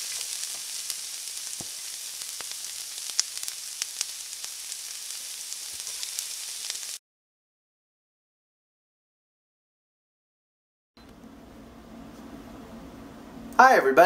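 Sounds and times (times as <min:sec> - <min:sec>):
food sizzling in a hot pan: 0:00.0 - 0:07.0.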